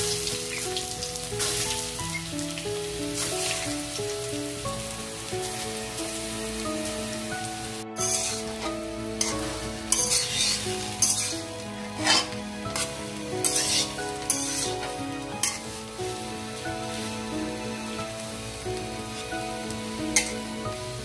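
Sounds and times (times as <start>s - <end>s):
background music: 0.0s - 21.0s
food sizzling in ghee: 0.0s - 21.0s
metal spatula stirring: 8.0s - 15.8s, 20.2s - 20.4s.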